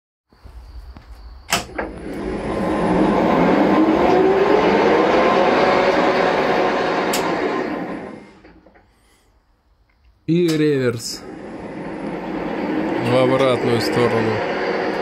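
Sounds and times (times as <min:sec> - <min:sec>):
lathe spindle whining: 0:01.6 - 0:08.8, 0:11.0 - 0:15.0.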